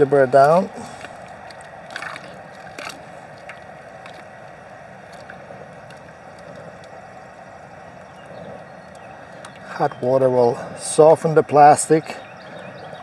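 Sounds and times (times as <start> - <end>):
light water splashes: 0.0 - 7.5
water sloshing and gurgling in pot: 0.0 - 10.1
steady low hiss: 0.0 - 13.0.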